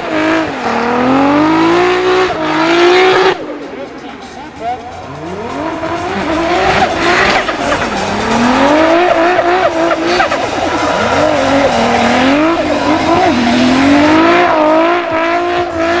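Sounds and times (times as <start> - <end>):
car engine revving: 0.0 - 16.0
tyres squealing: 5.0 - 14.3.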